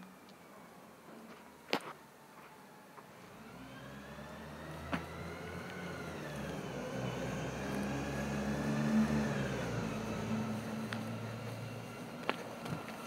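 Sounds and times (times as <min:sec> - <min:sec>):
bus engine running low: 0:02.7 - 0:13.0
whine rising and falling: 0:03.1 - 0:13.0.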